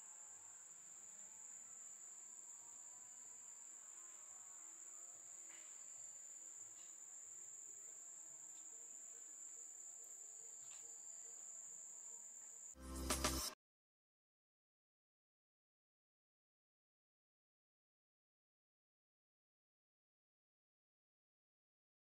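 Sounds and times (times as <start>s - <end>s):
high-pitched insect drone: 0.0s - 13.6s.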